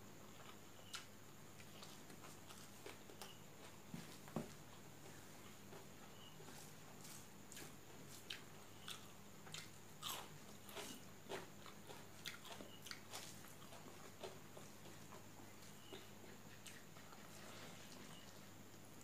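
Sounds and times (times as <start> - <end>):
chewing crunches: 7.5 - 17.5.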